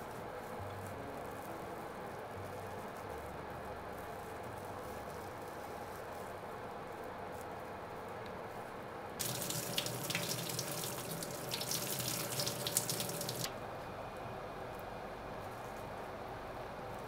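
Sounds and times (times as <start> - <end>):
water pouring and splashing into sink: 9.2 - 13.5.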